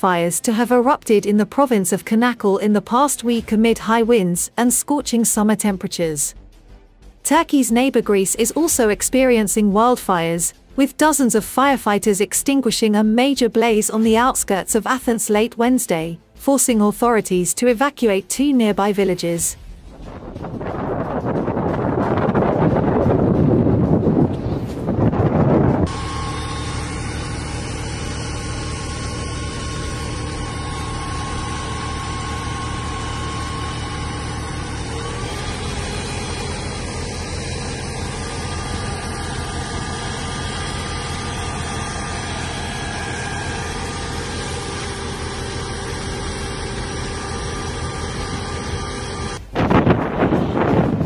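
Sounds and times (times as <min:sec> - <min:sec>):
wind on microphone: 0:19.8 - 0:25.9, 0:49.4 - 0:51.0
fire truck engine idling: 0:25.9 - 0:49.4.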